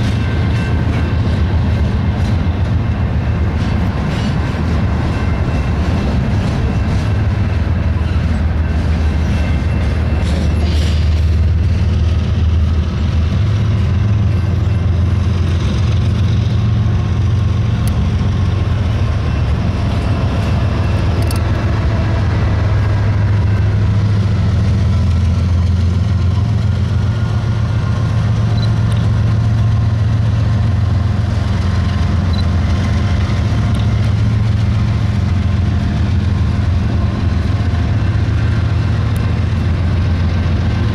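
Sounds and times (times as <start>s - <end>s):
diesel locomotive passing: 0.0s - 40.9s
train wheels rumbling on rail: 0.0s - 40.9s.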